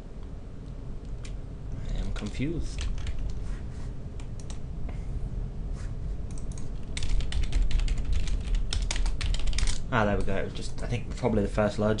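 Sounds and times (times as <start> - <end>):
steady low hum: 0.0 - 12.0
computer keyboard typing: 2.0 - 3.4, 4.2 - 4.6, 6.3 - 10.9.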